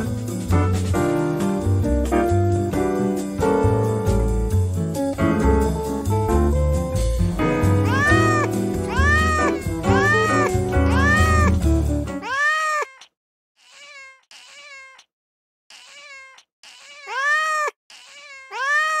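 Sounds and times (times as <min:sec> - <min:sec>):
music track: 0:00.0 - 0:12.2
cat meowing: 0:07.8 - 0:11.6, 0:12.2 - 0:15.1, 0:15.7 - 0:19.0.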